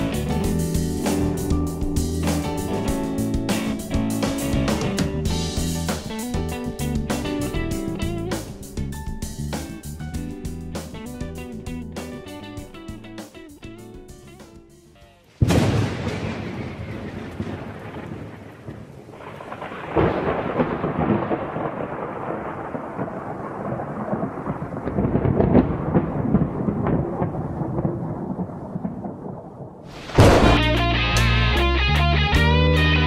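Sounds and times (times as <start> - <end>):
thunder rumbling: 0.0 - 12.0, 15.4 - 30.9
rain: 15.3 - 30.6.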